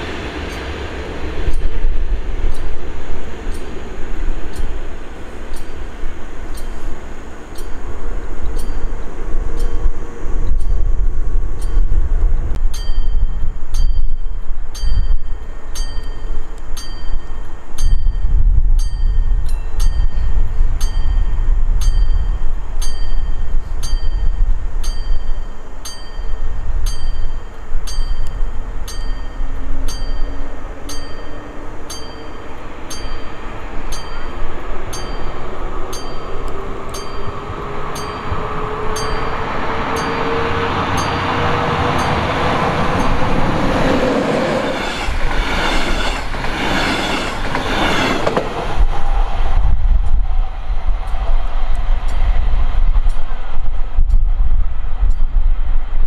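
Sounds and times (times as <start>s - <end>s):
train rumbling past: 0.0s - 56.0s
bell striking: 12.7s - 42.4s.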